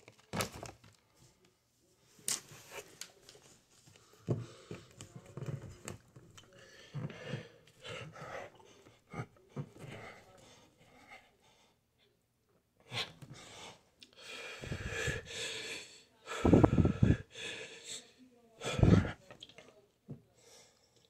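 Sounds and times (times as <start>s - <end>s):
hard breathing: 3.9s - 5.1s, 6.5s - 11.8s, 12.9s - 19.2s.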